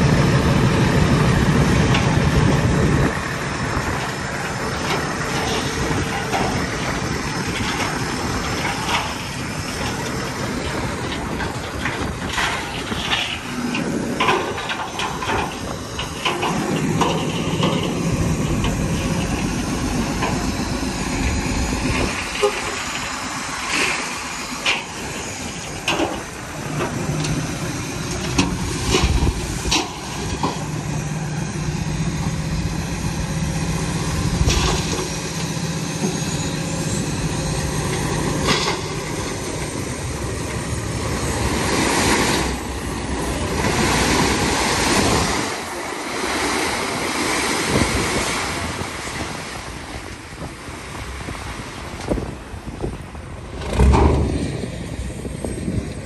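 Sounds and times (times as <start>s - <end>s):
truck engine hum: 0.0s - 56.0s
knocks and clanks: 4.4s - 27.4s, 28.0s - 30.8s, 37.8s - 39.8s, 53.6s - 54.7s.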